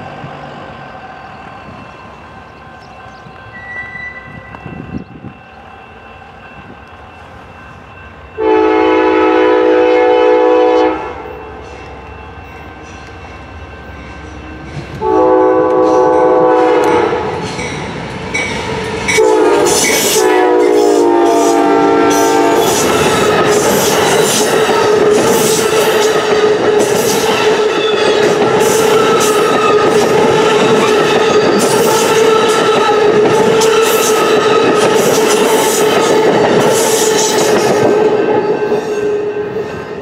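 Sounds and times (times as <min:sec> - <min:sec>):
locomotive air horn blasts: 0:08.4 - 0:11.5, 0:15.0 - 0:17.4, 0:19.2 - 0:23.9
train wheels clattering on rails: 0:11.7 - 0:40.0.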